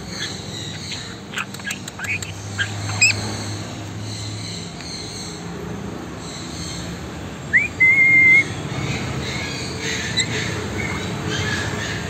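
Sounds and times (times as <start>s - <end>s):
parrot whistling and chirping: 0.1s - 3.2s, 7.5s - 8.5s.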